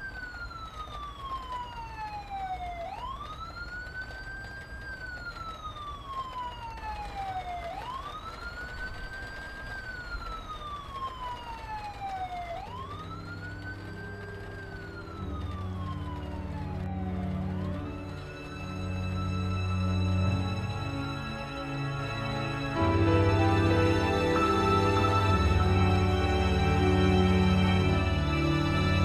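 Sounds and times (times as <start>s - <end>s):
siren wailing: 0.0s - 29.0s
low held music notes: 12.6s - 29.0s.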